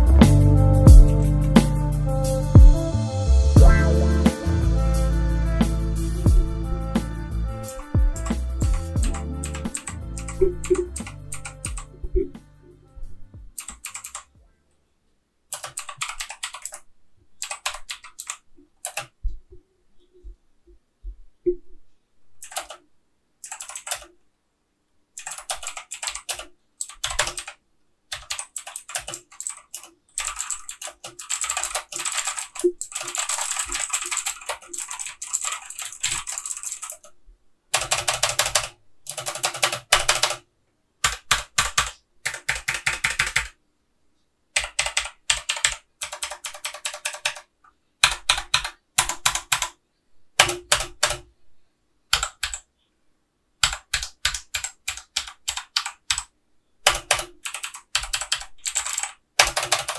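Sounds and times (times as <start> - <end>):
mechanical keyboard typing: 9.0 - 11.9, 13.5 - 14.3, 15.5 - 19.2, 22.4 - 22.8, 23.4 - 24.1, 25.2 - 37.1, 37.8 - 40.4, 41.0 - 43.6, 44.6 - 49.8, 50.4 - 51.2, 52.1 - 52.7, 53.6 - 59.9.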